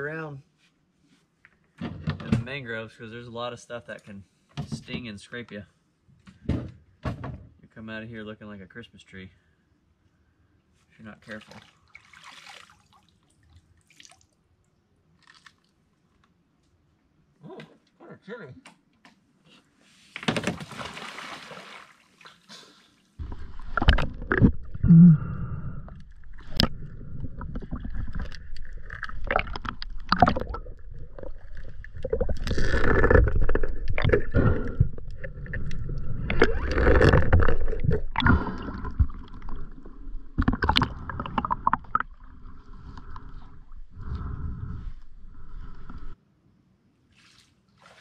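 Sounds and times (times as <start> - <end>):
person splashing into water: 11.4 - 13.1, 20.5 - 22.4, 47.2 - 48.0
water gurgling underwater: 23.2 - 46.1.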